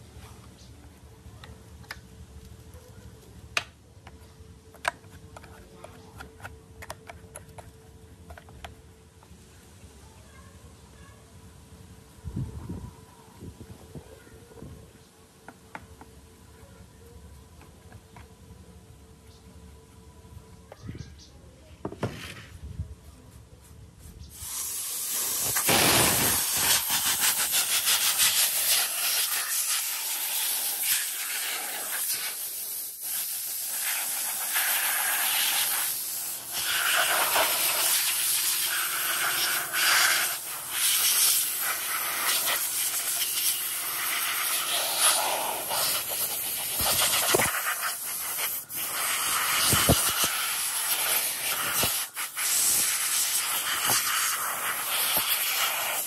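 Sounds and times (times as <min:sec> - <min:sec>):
compressed air blow gun hissing: 0:24.3 - 0:56.0.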